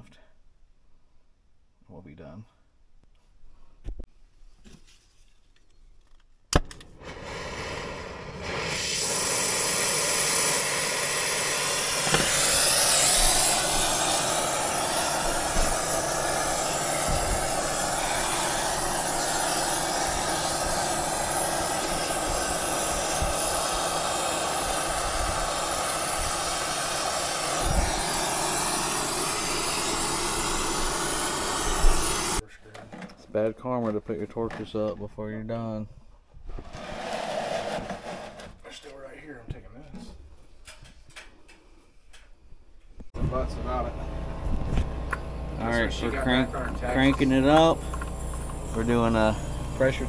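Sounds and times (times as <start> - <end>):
brazing torch hissing: 6.9 - 32.4, 44.8 - 50.0
torch igniter click: 8.4 - 24.6.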